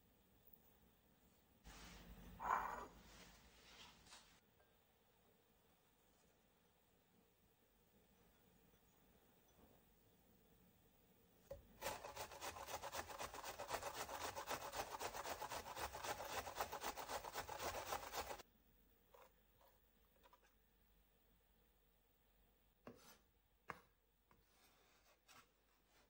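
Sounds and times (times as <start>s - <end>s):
onion grating on metal grater: 11.8s - 18.4s.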